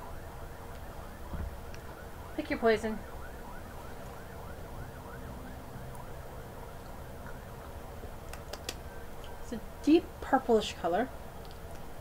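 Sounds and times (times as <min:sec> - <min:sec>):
faint siren yelping: 0:00.0 - 0:09.8.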